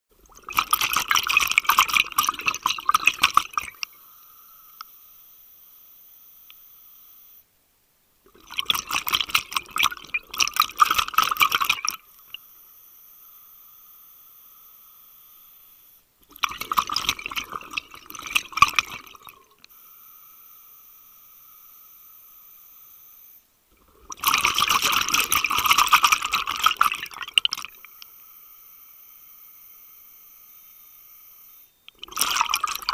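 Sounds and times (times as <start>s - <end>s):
faint steady whine: 0.1s - 32.9s
diver's exhaled bubbles underwater: 0.2s - 3.9s, 8.3s - 12.0s, 16.3s - 19.5s, 23.8s - 27.8s, 32.0s - 32.9s.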